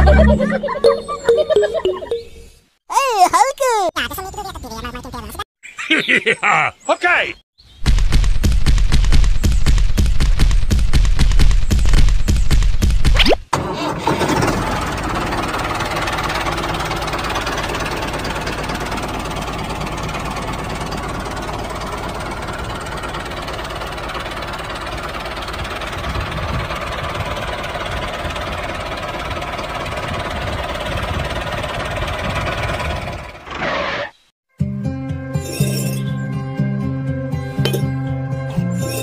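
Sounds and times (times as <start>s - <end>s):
tractor engine running: 13.6s - 33.6s.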